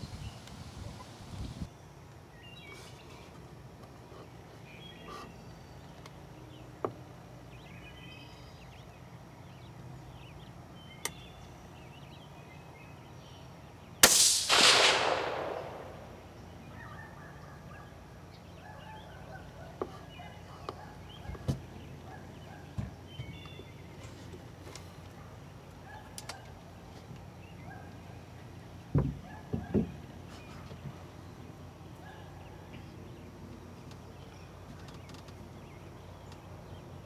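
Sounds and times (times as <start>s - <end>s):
rifle shot crack: 14.0s - 16.3s.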